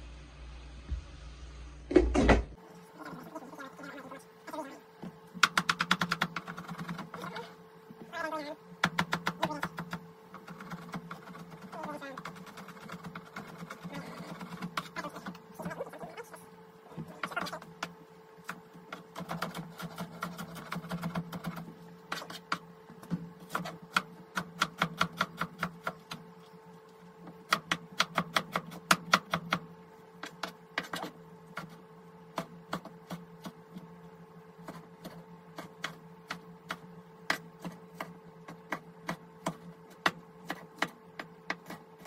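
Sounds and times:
steady low hum: 0.0 - 42.0
knife chopping on wooden board: 34.6 - 41.9.

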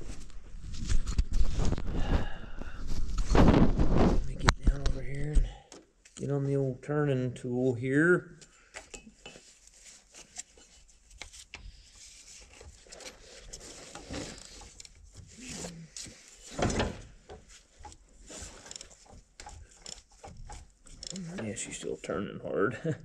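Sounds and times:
ratchet bar clicking and knocking: 17.8 - 21.2.

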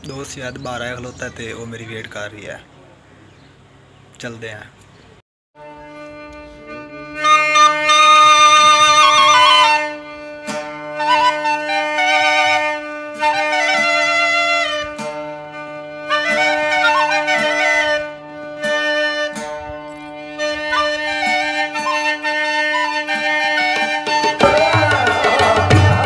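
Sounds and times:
flute-like woodwind melody: 5.6 - 26.0.

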